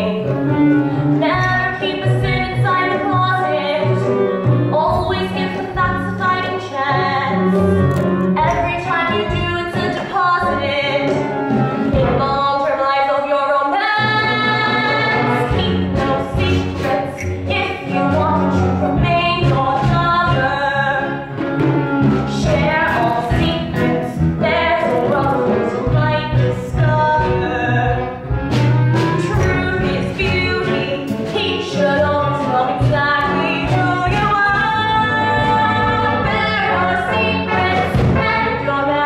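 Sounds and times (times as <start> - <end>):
instrumental accompaniment: 0.0 - 39.0
women singing: 11.9 - 21.1, 22.3 - 28.2, 29.1 - 39.0.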